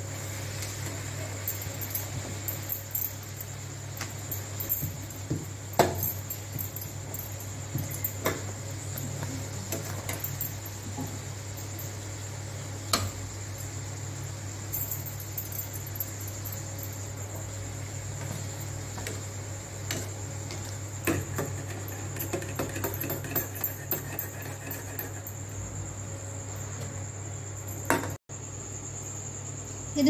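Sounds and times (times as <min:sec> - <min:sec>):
bread frying in hot oil: 0:00.0 - 0:14.7.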